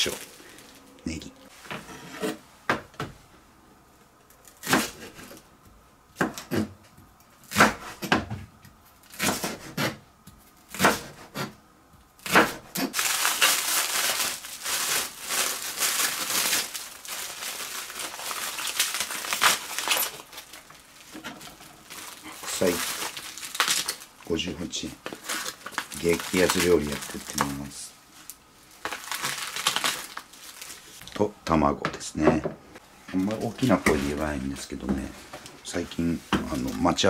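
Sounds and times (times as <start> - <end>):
plastic cling film crinkling: 0.0 - 1.2, 12.8 - 31.3, 35.7 - 37.0
knife chopping on cutting board: 9.1 - 10.0, 10.7 - 11.6, 12.2 - 12.9.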